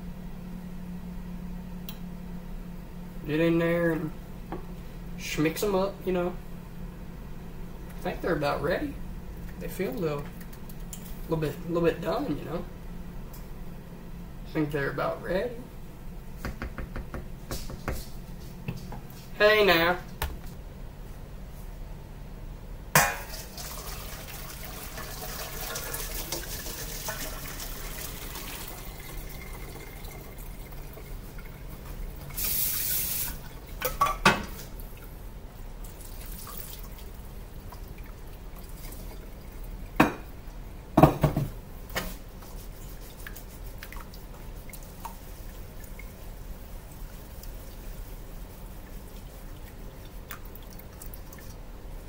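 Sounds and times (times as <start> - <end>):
water pouring and dripping: 23.3 - 33.7, 35.8 - 39.6, 48.8 - 51.6.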